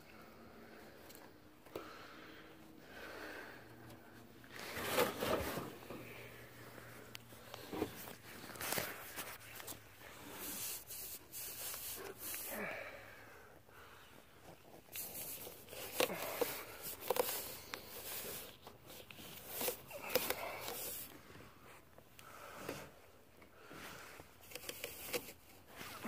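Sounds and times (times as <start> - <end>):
phone rustling and scraping in vent: 3.8 - 12.5, 14.2 - 21.9, 23.9 - 26.0.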